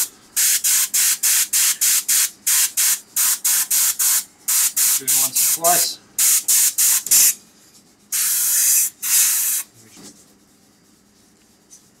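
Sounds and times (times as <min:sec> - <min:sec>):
airbrush spraying hiss: 0:00.0 - 0:07.4, 0:08.1 - 0:09.7.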